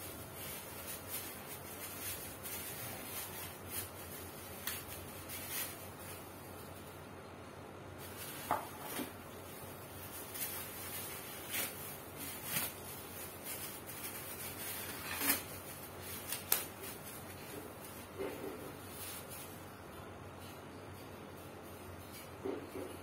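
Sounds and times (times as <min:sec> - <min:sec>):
plastic packaging crinkling: 0:00.0 - 0:07.0, 0:08.0 - 0:19.6.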